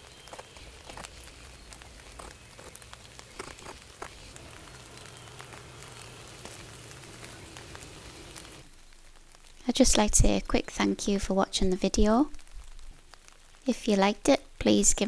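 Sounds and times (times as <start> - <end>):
faint low hum: 0.0 - 11.0.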